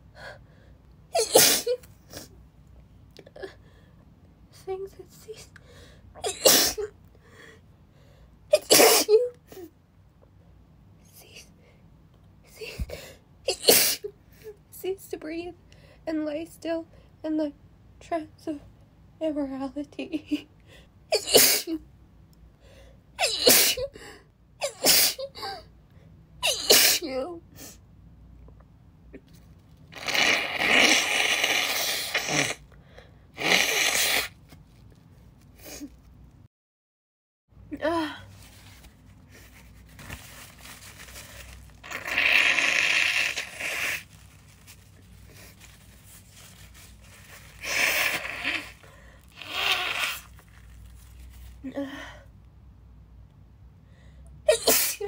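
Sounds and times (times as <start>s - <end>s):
woman sneezing: 1.2s - 2.3s, 6.2s - 6.9s, 8.5s - 9.3s, 21.2s - 21.8s, 23.2s - 23.9s, 24.6s - 25.6s, 26.4s - 27.2s, 54.5s - 55.0s.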